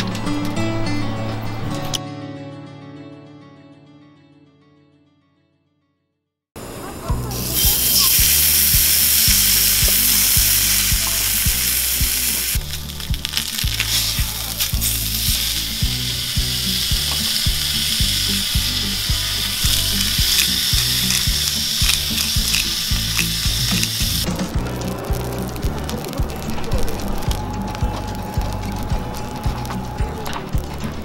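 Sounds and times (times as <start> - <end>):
low bass notes: 7.0 - 31.0
steak sizzling in a skillet: 7.2 - 30.7.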